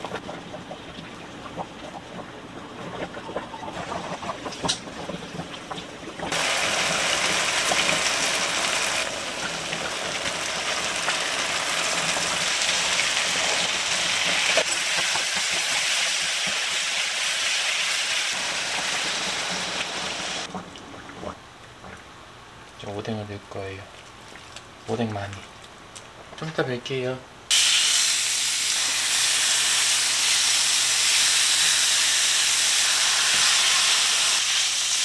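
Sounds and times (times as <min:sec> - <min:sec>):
food sizzling in a wok: 0:06.3 - 0:20.5, 0:27.5 - 0:35.0.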